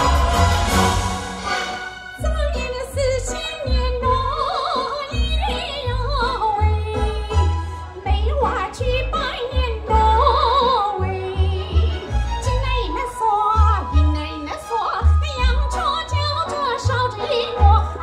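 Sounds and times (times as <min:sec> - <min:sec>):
woman singing into microphone: 0:02.2 - 0:07.4.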